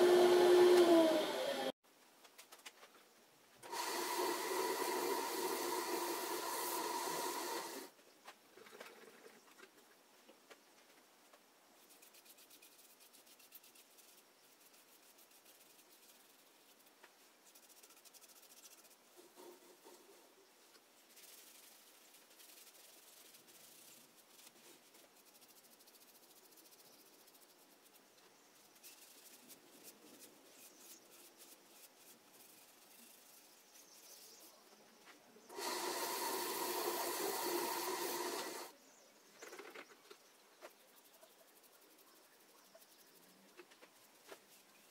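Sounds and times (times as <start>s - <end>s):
lathe motor humming: 0.0s - 1.7s, 3.7s - 7.9s, 35.5s - 38.7s
faint brushing and rubbing: 2.4s - 44.9s.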